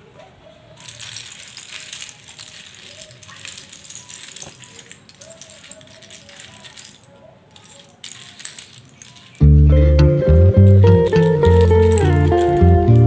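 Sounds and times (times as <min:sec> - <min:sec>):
plastic pieces clattering on table: 0:00.8 - 0:09.6, 0:10.6 - 0:13.0
loud guitar music: 0:09.4 - 0:13.0.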